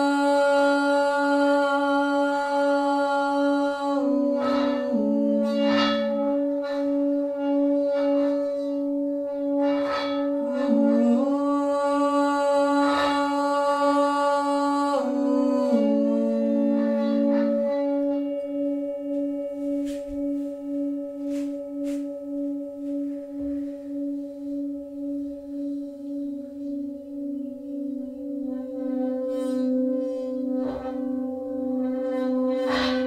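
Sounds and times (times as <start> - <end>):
bowl strikes: 0.0 - 33.0
singing bowls ringing: 0.0 - 33.0.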